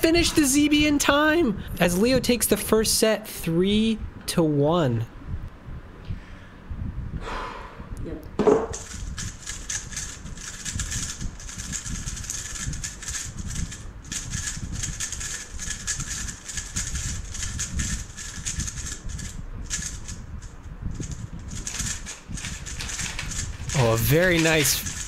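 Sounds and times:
puzzle cube plastic clicks: 21.6s - 25.0s.

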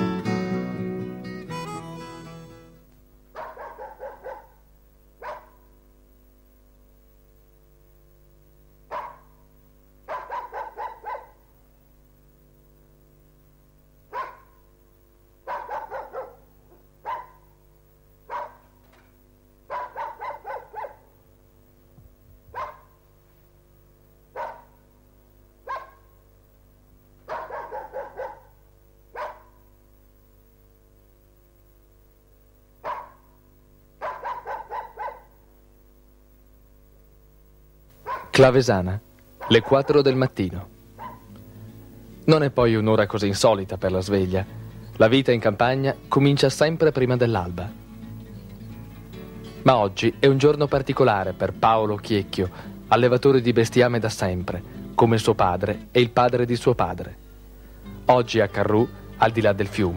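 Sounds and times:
dog barking: 3.3s - 4.6s, 5.2s - 5.7s, 8.9s - 9.4s, 10.1s - 11.5s, 14.1s - 14.6s, 15.4s - 17.6s, 18.3s - 18.8s, 19.7s - 21.1s, 22.5s - 23.0s, 24.3s - 24.8s, 25.6s - 26.2s, 27.2s - 29.6s, 32.8s - 33.4s, 34.0s - 35.4s, 38.0s - 38.4s, 39.4s - 40.0s, 41.0s - 41.3s.

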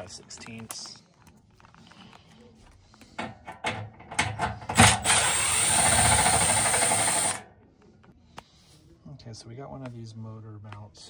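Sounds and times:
power driver running: 4.4s - 7.4s.

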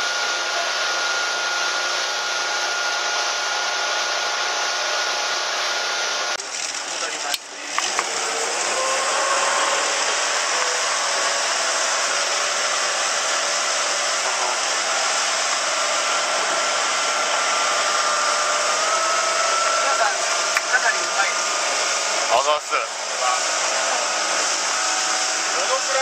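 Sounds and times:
faint boat engine whine: 0.0s - 26.0s.

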